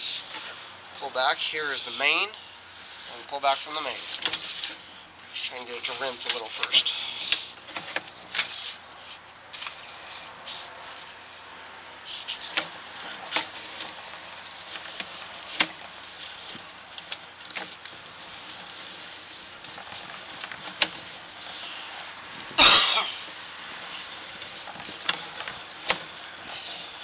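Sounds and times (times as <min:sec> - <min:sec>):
steady hiss: 0:00.0 - 0:07.7
loud short noise: 0:22.6 - 0:23.2.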